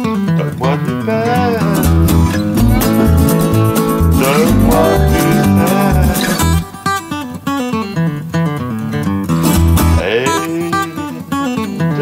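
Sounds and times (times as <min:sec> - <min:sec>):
strummed acoustic guitar: 0:00.0 - 0:12.0
deep bass line: 0:01.8 - 0:06.6.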